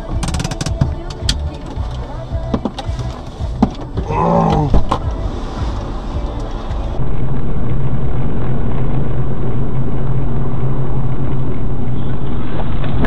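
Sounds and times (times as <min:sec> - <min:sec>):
road noise: 0:00.0 - 0:13.0
vehicle engine running: 0:00.0 - 0:13.0.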